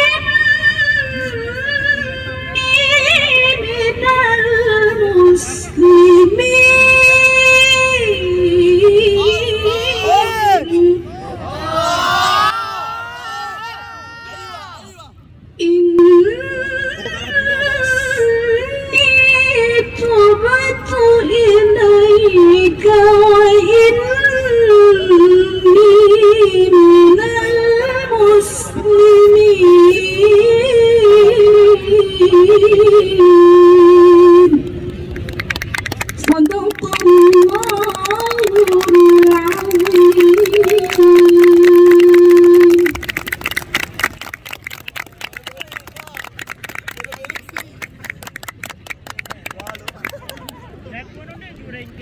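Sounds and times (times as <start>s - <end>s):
woman reciting melodically: 0.0s - 11.2s, 15.6s - 34.5s, 36.2s - 42.9s
woman chanting melodic recitation: 36.3s - 42.9s.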